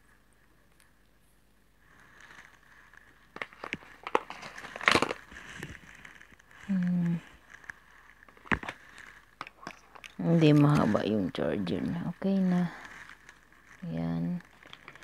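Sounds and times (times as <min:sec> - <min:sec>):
cable rustling: 0:01.8 - 0:15.0
person humming: 0:06.7 - 0:07.2.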